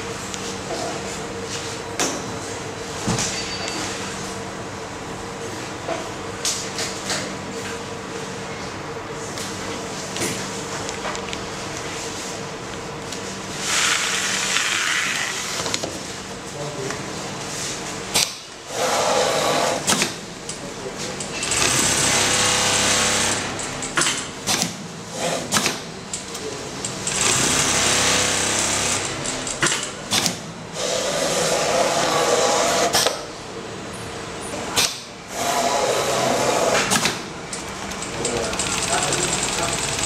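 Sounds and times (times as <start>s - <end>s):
sewing machine stitching: 21.4s - 23.7s, 27.0s - 29.5s, 37.6s - 40.0s.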